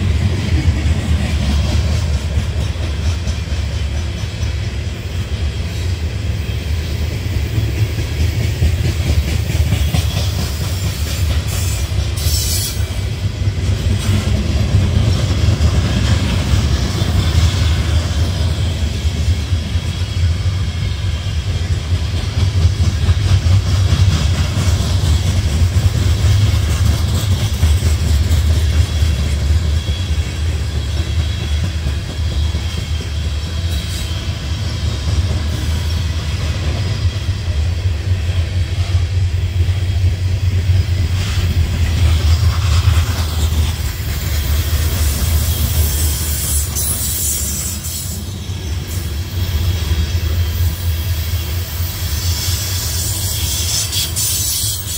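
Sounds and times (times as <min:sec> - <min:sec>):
train wheels rumbling on rails: 0:00.0 - 0:54.9.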